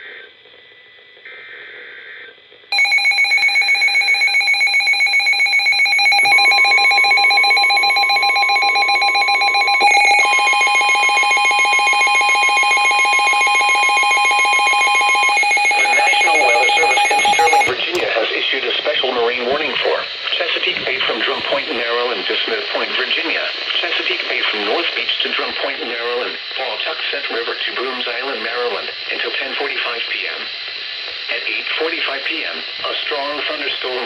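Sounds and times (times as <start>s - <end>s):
rapid pulsing electronic alarm beeping: 2.7s - 18.0s
steady warning tone: 2.7s - 18.0s
warbling data bursts: 15.0s - 17.8s.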